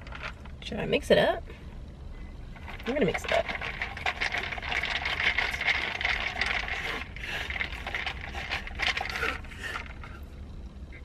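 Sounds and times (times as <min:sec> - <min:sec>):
plastic straw stirring in plastic cup: 0:02.6 - 0:10.2.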